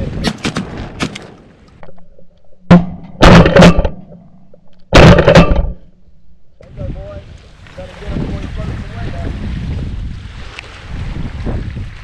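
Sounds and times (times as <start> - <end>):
shotgun shots: 0.2 - 1.4, 2.7 - 4.0, 4.9 - 5.8.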